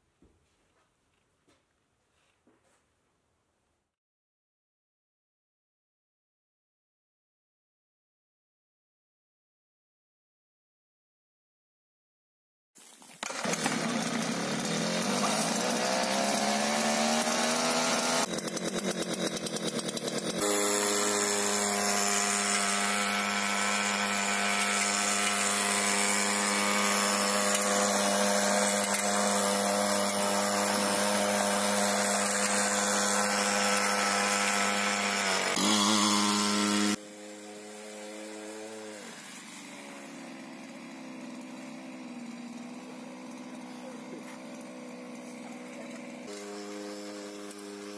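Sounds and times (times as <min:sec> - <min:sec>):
small engine revving: 0:13.2 - 0:47.9.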